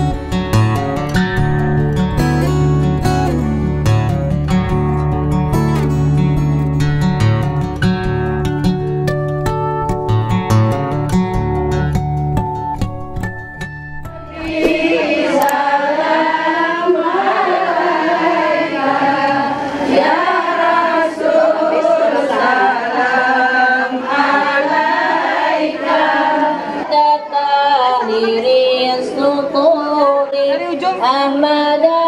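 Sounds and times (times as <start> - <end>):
women singing devotional chant: 14.3 - 32.0.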